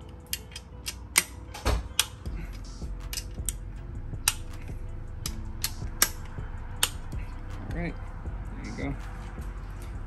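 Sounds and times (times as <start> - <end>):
torque wrench clicking: 0.2 - 3.6, 4.2 - 4.5, 5.2 - 7.0.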